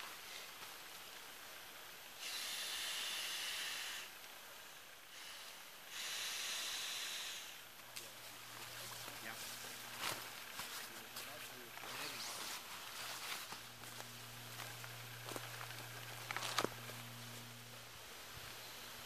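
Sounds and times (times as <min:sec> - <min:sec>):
foam pad rubbing against nylon: 0:08.6 - 0:13.8.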